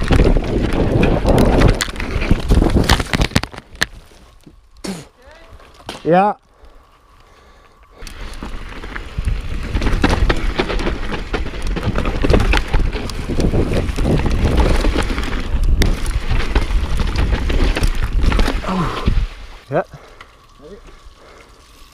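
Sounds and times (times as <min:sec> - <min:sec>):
wind buffeting microphone: 0:00.0 - 0:03.1, 0:08.2 - 0:19.5
bike rattling over bumps: 0:00.0 - 0:04.3, 0:07.5 - 0:21.9
bike tyres rolling over dirt: 0:00.0 - 0:21.9.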